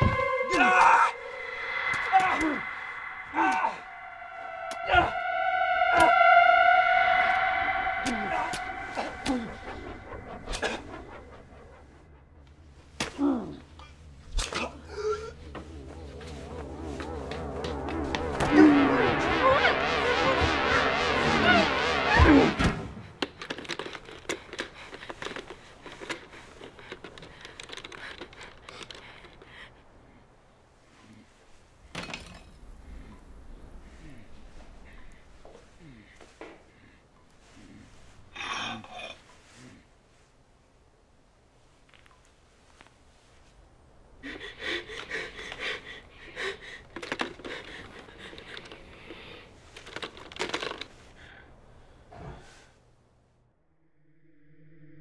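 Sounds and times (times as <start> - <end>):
loud falling tone: 0.0 - 12.8, 15.1 - 23.2, 53.7 - 55.0
rotary telephone clicks and rattles: 23.2 - 29.5, 46.8 - 49.0, 49.7 - 50.9
quick breathing: 24.2 - 30.1, 44.2 - 50.2.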